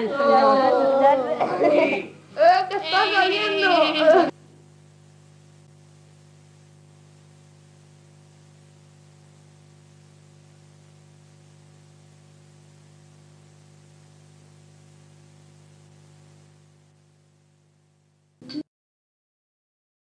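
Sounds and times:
low hiss: 0.0s - 17.8s
electrical hum: 0.0s - 18.6s.

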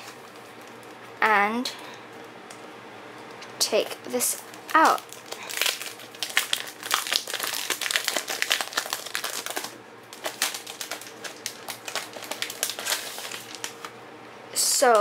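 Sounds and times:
plastic sleeve crinkling and rustling: 0.0s - 1.2s, 3.4s - 14.0s.

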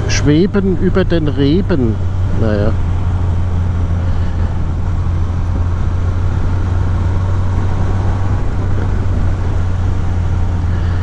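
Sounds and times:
motorcycle engine running: 0.0s - 11.0s
wind and road rush: 0.0s - 11.0s.

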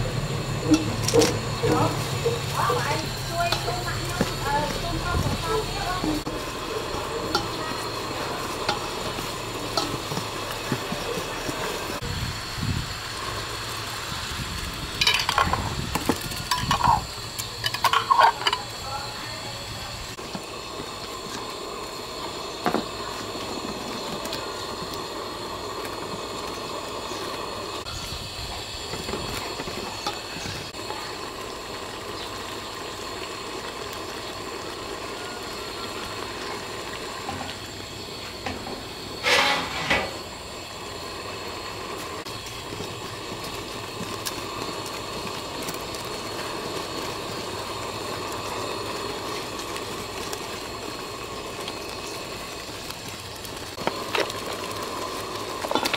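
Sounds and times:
stove hissing: 0.0s - 55.9s
metal ladle stirring in pot: 0.6s - 12.0s, 16.3s - 18.7s.

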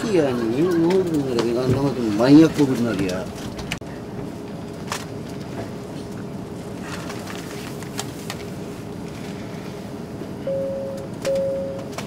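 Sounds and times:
airliner cabin drone: 0.0s - 12.0s
short electronic beeps: 10.5s - 11.8s.

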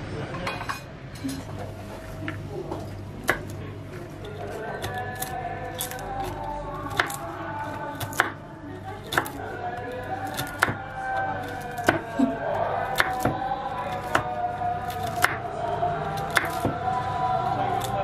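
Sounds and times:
background music: 4.3s - 8.4s, 9.1s - 18.0s
knife chopping on wooden board: 7.9s - 8.4s, 10.2s - 10.8s, 11.4s - 12.1s, 12.8s - 13.4s, 14.9s - 15.4s, 16.2s - 16.8s.

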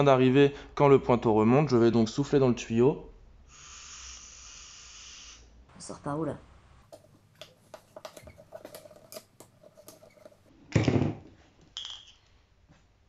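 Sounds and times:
puff of breath blown: 3.5s - 5.5s.

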